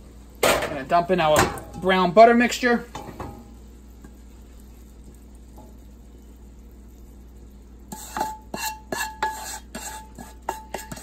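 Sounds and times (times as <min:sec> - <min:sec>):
wooden spoon knocking in frying pan: 0:08.0 - 0:11.0.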